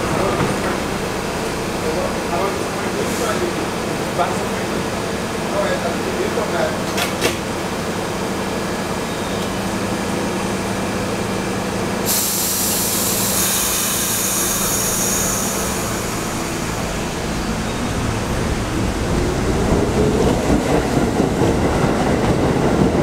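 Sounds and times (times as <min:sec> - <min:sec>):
subway car humming: 0:00.0 - 0:23.0
train rumbling moving off: 0:00.0 - 0:23.0
air brakes hissing: 0:12.0 - 0:17.1.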